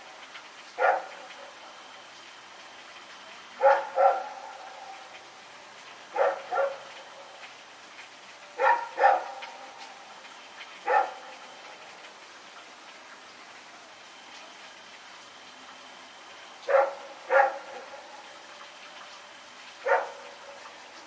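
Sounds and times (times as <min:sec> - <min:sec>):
dog barking: 0:00.8 - 0:01.5, 0:03.6 - 0:05.0, 0:06.1 - 0:06.9, 0:08.6 - 0:09.6, 0:10.8 - 0:11.4, 0:16.7 - 0:18.1, 0:19.8 - 0:20.5.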